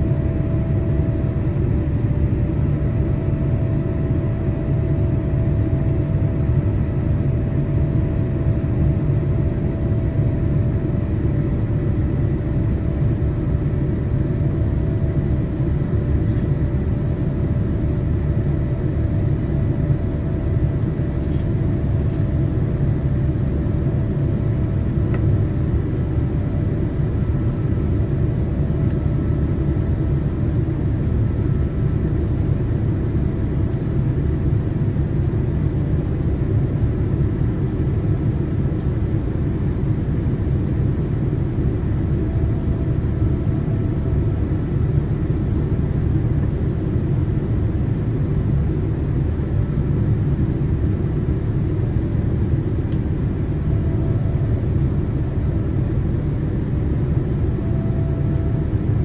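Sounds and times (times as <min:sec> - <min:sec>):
airliner low rumble: 0:00.0 - 0:59.0
faint steady hum: 0:00.0 - 0:59.0.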